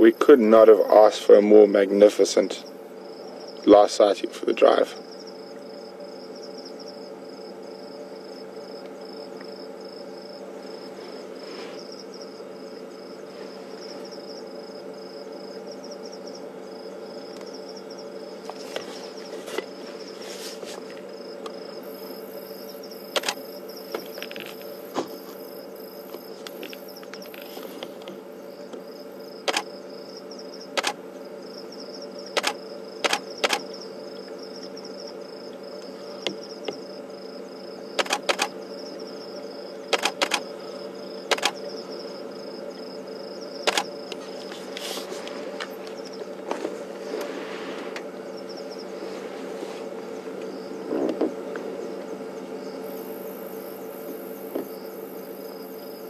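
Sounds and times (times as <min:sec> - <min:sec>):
crickets trilling: 0:00.0 - 0:56.0
short sharp clicks: 0:40.0 - 0:40.4.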